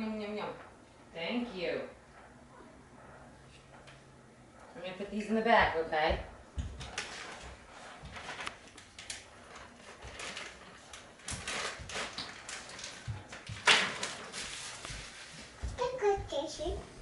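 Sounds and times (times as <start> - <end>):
soft rustling: 4.6 - 17.0.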